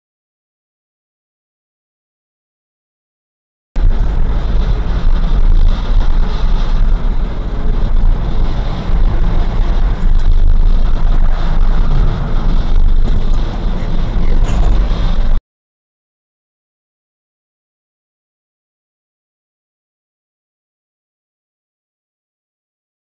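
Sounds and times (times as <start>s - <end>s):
car interior road rumble: 3.8s - 15.4s.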